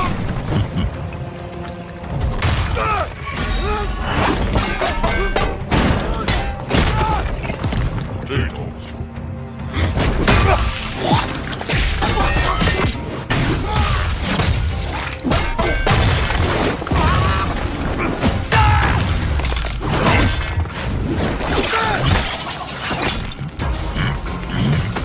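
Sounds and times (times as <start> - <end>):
soundtrack music: 0.0 - 25.0
rock shattering: 15.8 - 20.7.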